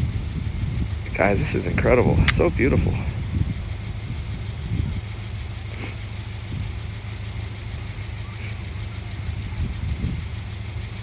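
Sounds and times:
wind buffeting microphone: 0.0s - 5.3s, 9.0s - 10.6s.

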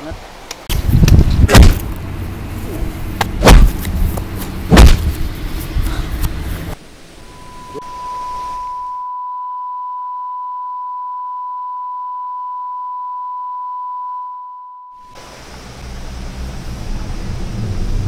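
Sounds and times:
rushing background noise: 0.1s - 8.7s
high-pitched electronic tone: 7.2s - 15.2s.

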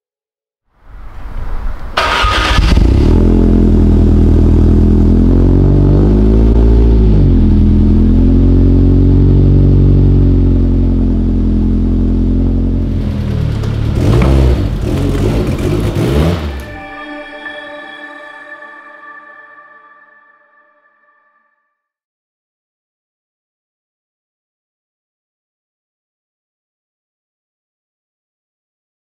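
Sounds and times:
car engine starting and revving: 2.0s - 16.8s.

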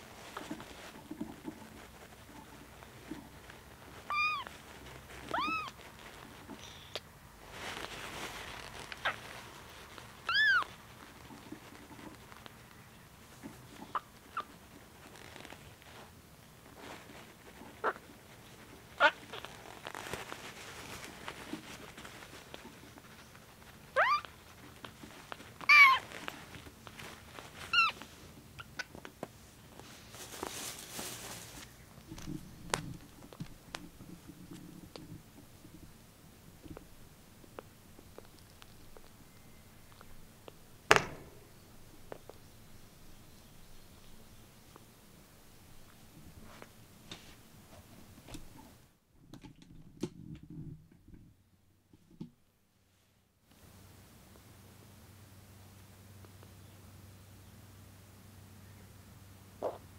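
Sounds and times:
kitten faint squeaks: 4.0s - 5.9s, 8.9s - 9.4s, 10.2s - 10.8s, 13.8s - 14.6s, 23.9s - 24.6s, 25.6s - 26.2s, 27.6s - 29.0s
kitten mewing: 4.1s - 4.5s, 5.2s - 5.8s, 10.3s - 10.7s, 23.9s - 24.4s, 25.6s - 26.0s, 27.7s - 28.0s.

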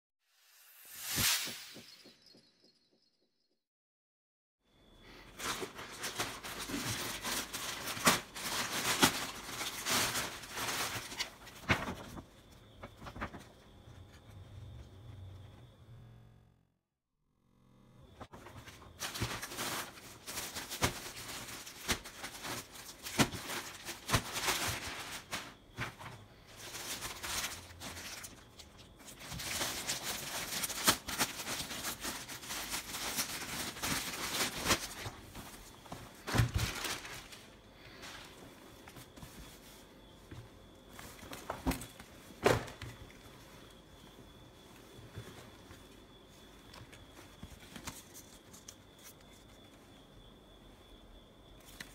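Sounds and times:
plastic bag crinkling: 5.4s - 12.1s, 26.5s - 38.4s.

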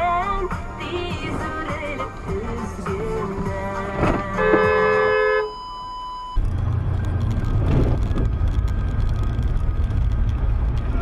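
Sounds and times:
electronic beep: 5.4s - 6.4s
car driving on slushy road: 6.4s - 11.0s.

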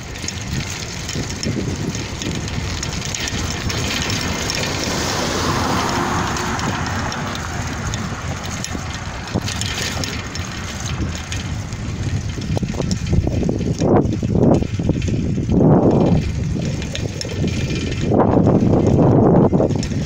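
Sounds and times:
road noise: 0.0s - 20.0s
wind buffeting microphone: 0.0s - 20.0s
car passing: 1.0s - 12.9s.

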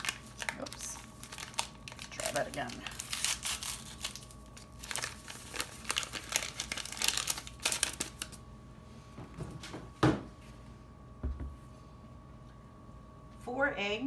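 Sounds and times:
paper packet crinkling: 0.0s - 8.4s
single thump: 11.2s - 11.6s.

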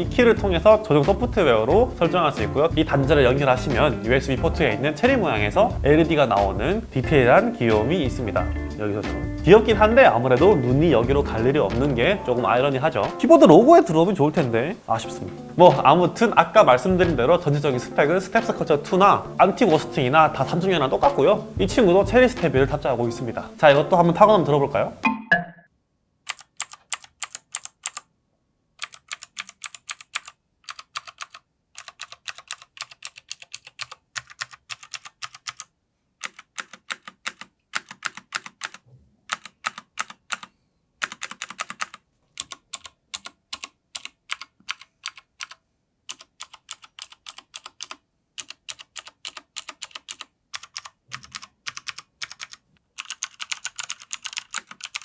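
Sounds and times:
mechanical keyboard key clicks: 26.3s - 28.0s, 28.8s - 35.6s, 36.2s - 55.0s.

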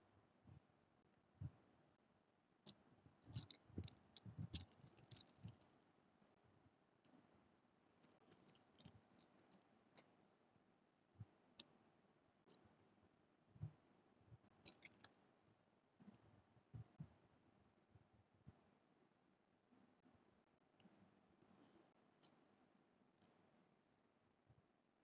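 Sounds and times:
faint clicks and soft taps: 2.6s - 10.2s, 12.4s - 12.8s, 13.5s - 17.3s, 20.0s - 23.5s.

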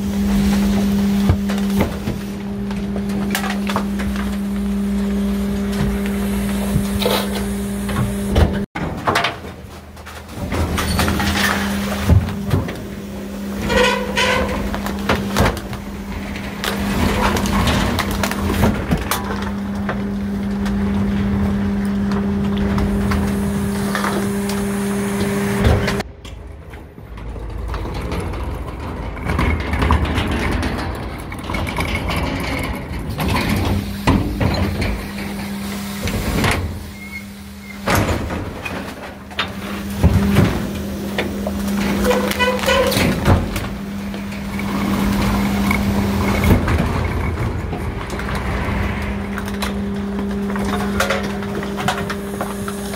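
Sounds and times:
hydraulic pump humming: 0.0s - 8.7s, 10.2s - 26.1s, 32.5s - 52.9s
refuse bags crushed crackling: 9.3s - 26.0s.

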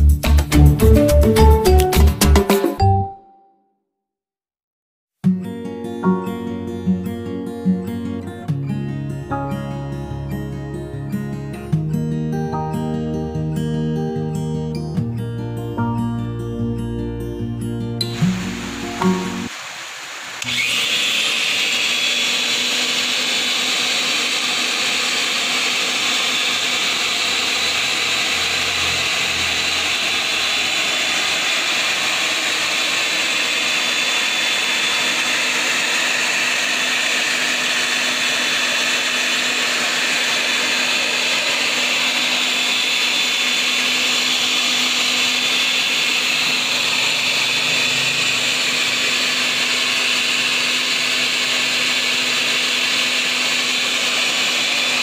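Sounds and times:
thickness planer motor whirring: 18.0s - 55.0s.

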